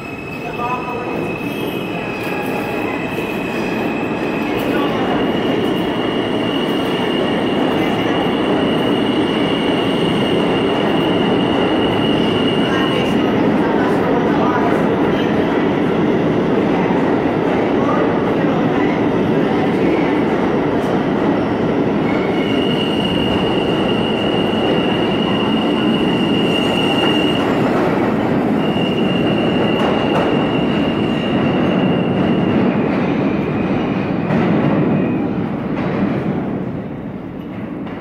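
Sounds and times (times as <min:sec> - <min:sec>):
steel wheels rumbling on rail: 0:00.0 - 0:38.0
high wheel squeal: 0:22.1 - 0:27.7, 0:28.4 - 0:32.6.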